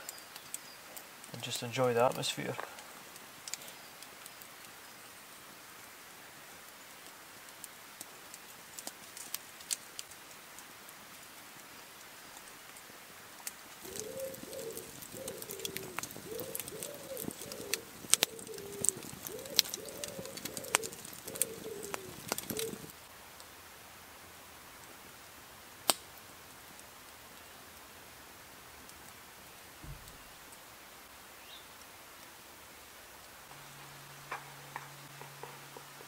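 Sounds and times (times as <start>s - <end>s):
campfire crackling and popping: 0.0s - 23.6s, 24.8s - 30.7s, 33.2s - 36.0s
pigeon cooing: 13.8s - 22.9s, 34.3s - 36.0s.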